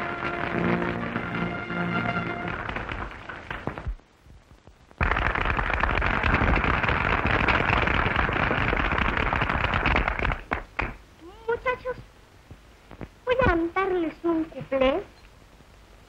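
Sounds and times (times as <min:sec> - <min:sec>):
orchestral music: 0:00.0 - 0:03.2
crowd applauding: 0:00.0 - 0:04.0, 0:05.0 - 0:10.8.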